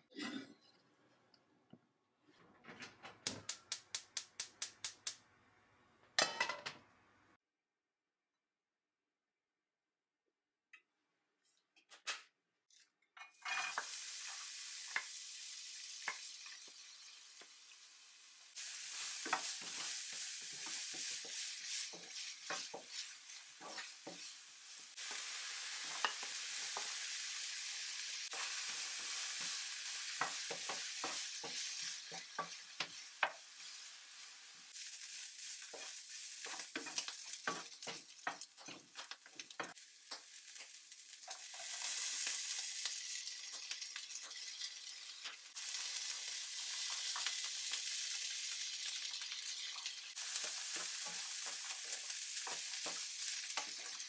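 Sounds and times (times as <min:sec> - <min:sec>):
onion and bacon sizzling in oil: 0:13.2 - 0:54.0
utensil scraping on pan: 0:19.0 - 0:25.2, 0:50.1 - 0:54.0.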